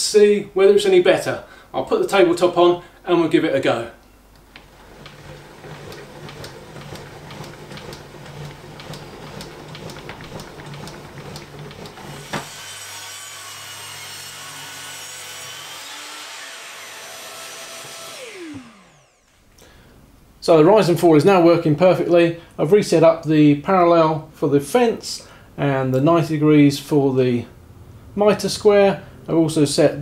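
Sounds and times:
table saw cutting timber: 0:04.8 - 0:19.3.

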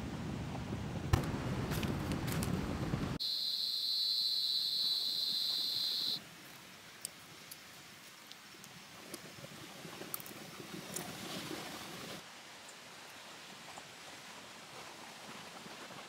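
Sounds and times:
high-pitched insect drone: 0:03.2 - 0:06.2.

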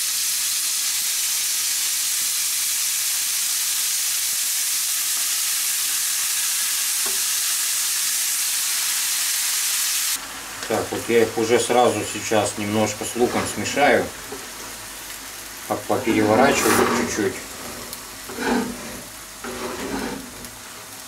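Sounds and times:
mushrooms sizzling in hot oil: 0:00.0 - 0:21.0.

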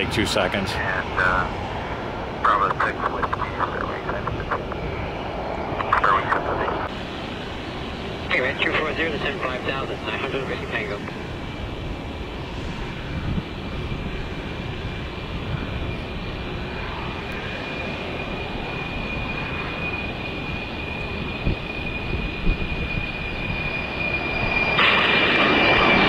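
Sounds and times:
jet engines rumbling and whining: 0:00.0 - 0:26.0.

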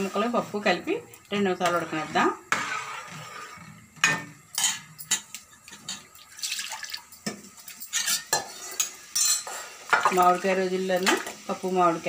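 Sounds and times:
spoon clinking on metal pot: 0:07.2 - 0:10.2.

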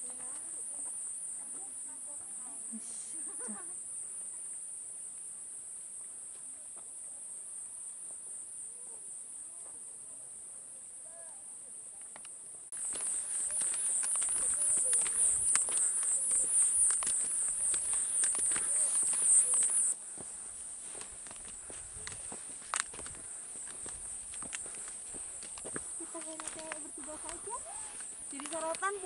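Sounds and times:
insects trilling: 0:00.0 - 0:06.2, 0:10.9 - 0:29.0
footsteps clicking and rustling: 0:12.8 - 0:29.0.

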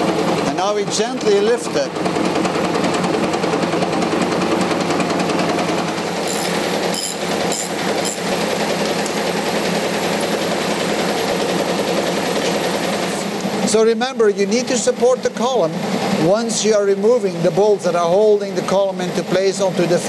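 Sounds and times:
forklift engine running: 0:00.0 - 0:14.0
ratchet wrench clicking: 0:06.3 - 0:08.2.

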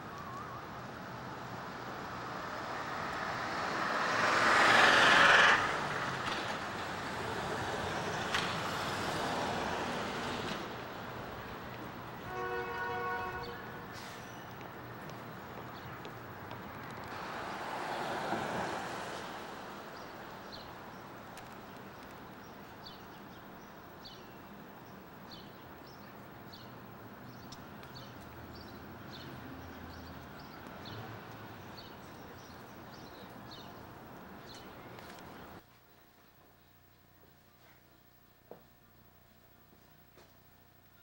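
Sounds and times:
steady traffic noise: 0:00.0 - 0:41.0
vehicle passing close: 0:01.1 - 0:11.6, 0:16.8 - 0:21.0.

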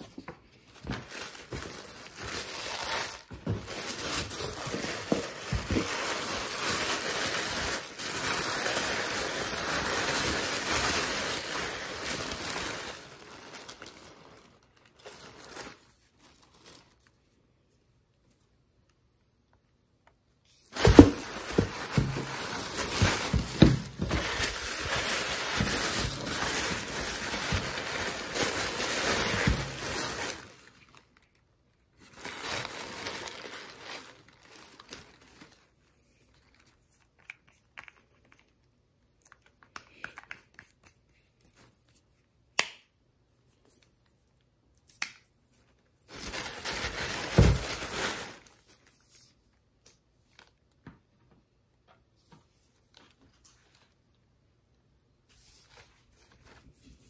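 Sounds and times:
tissue paper crinkling: 0:00.6 - 0:17.3, 0:20.5 - 0:31.3, 0:31.9 - 0:36.8, 0:46.1 - 0:49.4, 0:55.3 - 0:57.0.

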